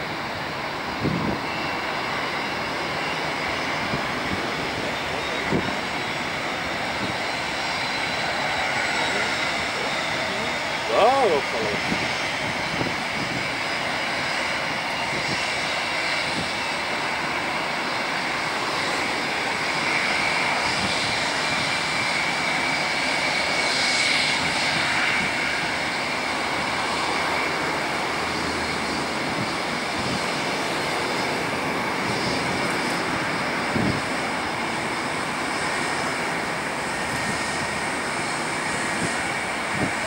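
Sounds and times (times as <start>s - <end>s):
jet engine high whine: 0.0s - 40.0s
jet engines rushing: 0.0s - 40.0s.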